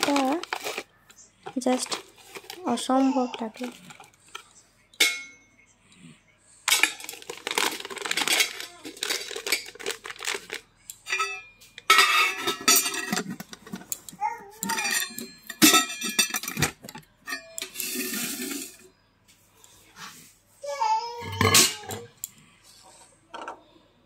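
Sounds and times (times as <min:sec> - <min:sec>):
plastic scoop scraping in metal tin: 0:00.0 - 0:00.9, 0:06.7 - 0:10.6, 0:17.6 - 0:18.8
foil packet rustling: 0:00.0 - 0:04.4, 0:06.7 - 0:10.7
metallic clink: 0:05.0 - 0:05.4.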